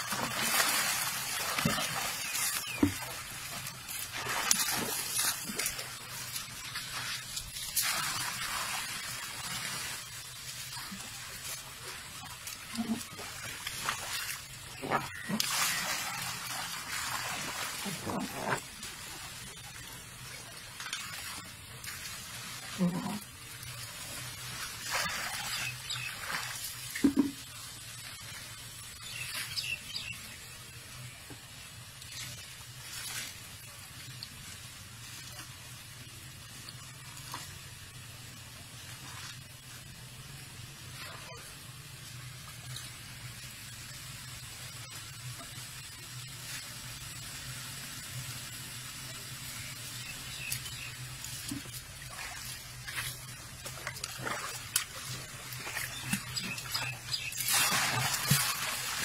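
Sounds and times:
elephant splashing water: 0:00.0 - 0:19.6, 0:20.9 - 0:27.3, 0:50.2 - 0:59.0.

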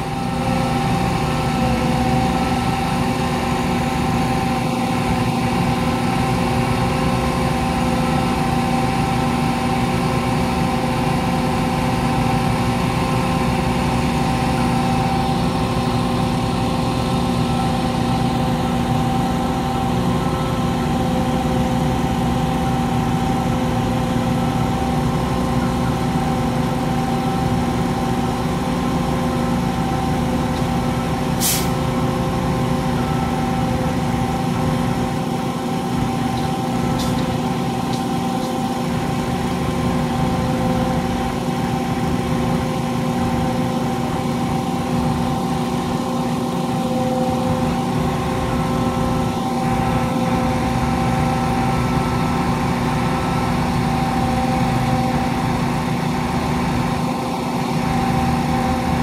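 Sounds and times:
heavy diesel engine running: 0:00.0 - 0:59.0
short sharp hiss: 0:31.4 - 0:31.8.

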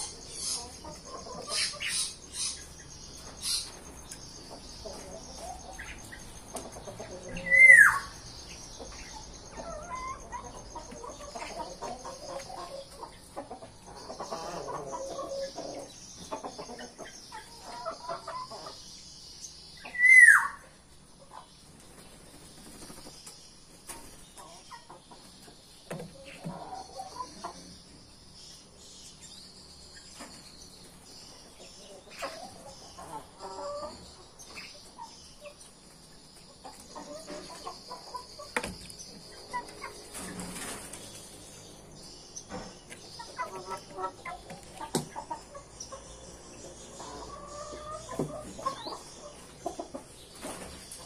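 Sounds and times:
hens clucking softly: 0:00.0 - 0:18.9, 0:23.9 - 0:27.9, 0:31.4 - 0:41.1, 0:42.9 - 0:51.0.

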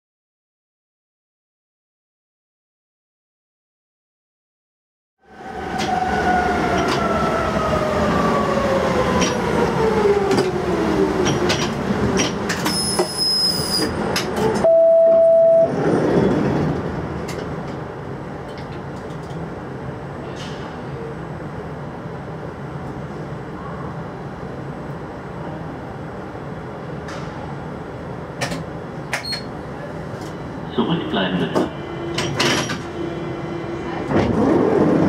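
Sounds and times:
high brake squeal: 0:12.6 - 0:14.0
single beep: 0:14.6 - 0:15.7
stopped train humming: 0:20.8 - 0:35.0.

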